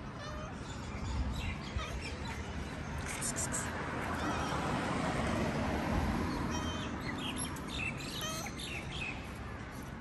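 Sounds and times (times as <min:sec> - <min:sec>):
cat meowing: 0:00.1 - 0:00.6
small birds chirping: 0:00.3 - 0:04.3, 0:06.3 - 0:09.4.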